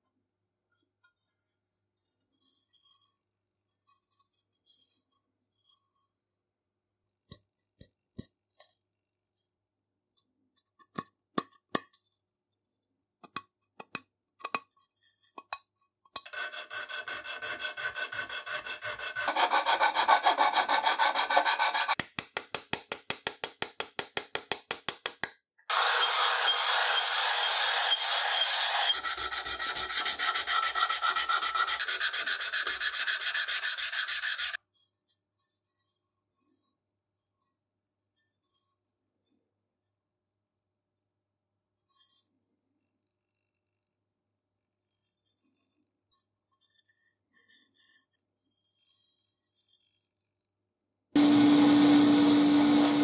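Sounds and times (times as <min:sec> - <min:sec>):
clicks and taps: 0:13.2 - 0:14.7, 0:22.0 - 0:25.4
file and sanding on metal: 0:16.2 - 0:22.0, 0:25.7 - 0:34.6.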